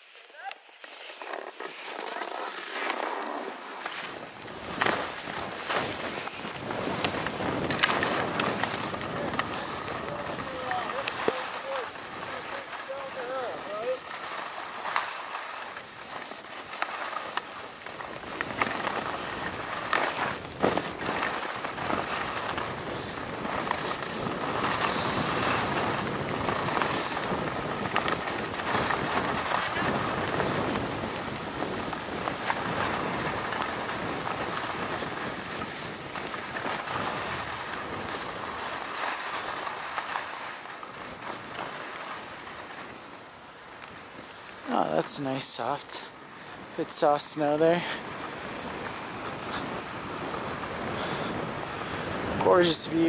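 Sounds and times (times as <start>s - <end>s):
ski scrapes and clicks: 0.0s - 53.0s
skis sliding over snow: 0.0s - 53.0s
wind on microphone: 4.1s - 14.1s, 17.7s - 39.0s, 47.6s - 53.0s.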